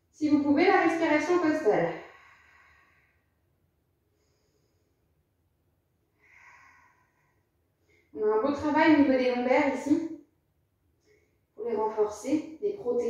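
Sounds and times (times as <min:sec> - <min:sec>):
faint breath out: 0:01.9 - 0:03.3, 0:06.2 - 0:08.1.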